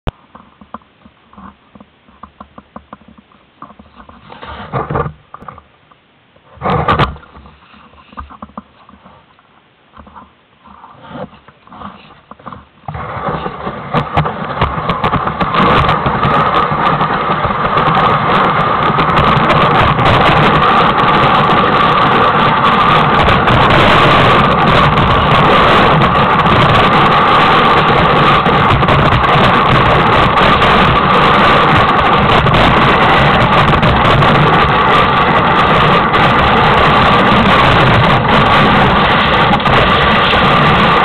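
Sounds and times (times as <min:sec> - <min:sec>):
bumps on wooden sled: 0:00.1 - 0:05.8, 0:06.4 - 0:41.0
sled sliding over snow: 0:00.1 - 0:05.8, 0:06.4 - 0:41.0.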